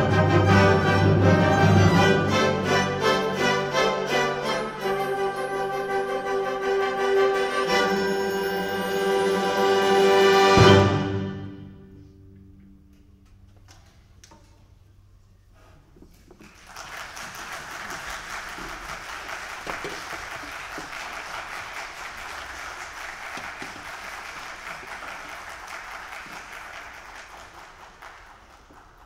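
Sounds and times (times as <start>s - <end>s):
audience applauding: 16.4s - 29.0s.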